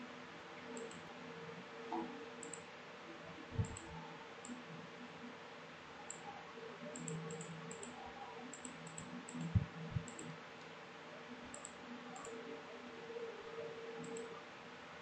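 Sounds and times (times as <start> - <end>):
faint steady hum: 0.0 - 15.0
computer mouse clicks: 0.7 - 1.1, 1.9 - 2.7, 3.6 - 4.7, 6.1 - 6.3, 6.9 - 10.7, 11.5 - 12.4, 14.0 - 14.4.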